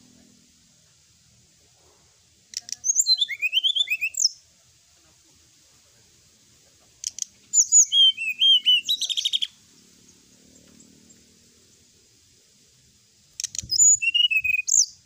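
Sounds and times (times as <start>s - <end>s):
bird singing whistled notes: 2.5s - 4.4s, 7.0s - 10.2s, 13.3s - 15.0s
bird sharp clicks: 7.0s - 7.6s, 13.3s - 14.3s.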